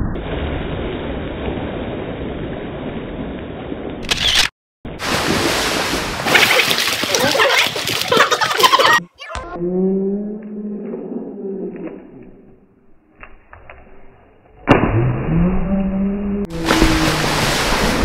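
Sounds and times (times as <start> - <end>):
pool water splashing: 4.9 - 9.0, 16.5 - 18.0.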